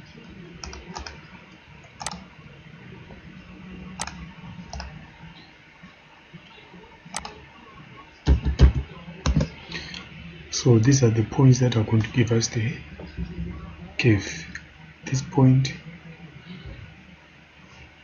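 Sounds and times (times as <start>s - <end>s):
faint steady hum: 0.0s - 18.0s
computer mouse clicks: 0.6s - 1.2s, 2.0s - 2.2s, 4.0s - 4.9s, 7.1s - 7.4s.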